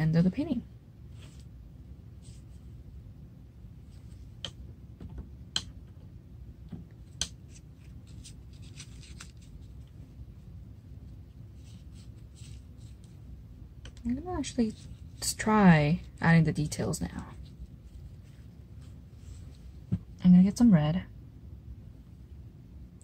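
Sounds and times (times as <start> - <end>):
low steady hum: 0.0 - 23.0
brush scratching on paper: 11.5 - 13.2.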